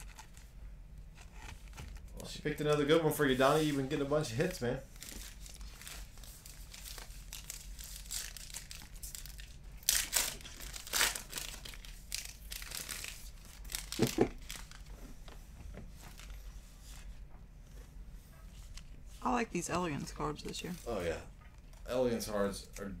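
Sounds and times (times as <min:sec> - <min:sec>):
plastic wrappers crinkling: 0:04.9 - 0:15.0.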